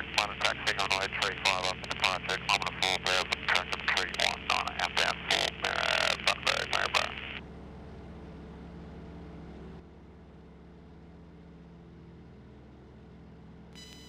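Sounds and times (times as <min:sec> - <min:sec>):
muffled engine drone: 0:00.0 - 0:07.4.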